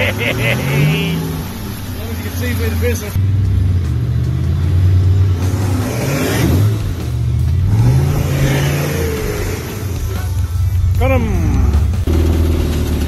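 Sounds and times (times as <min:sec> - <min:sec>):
engine revving: 0:00.0 - 0:13.0.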